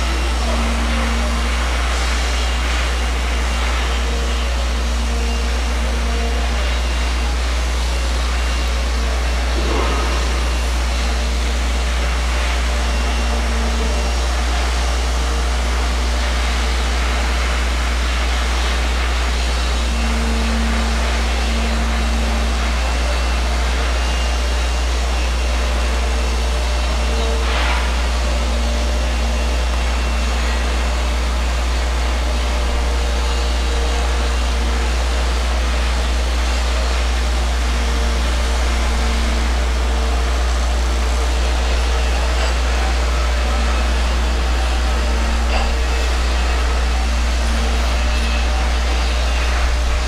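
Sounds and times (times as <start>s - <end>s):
faint machine hum: 0.0s - 50.0s
low rumble: 9.6s - 11.2s.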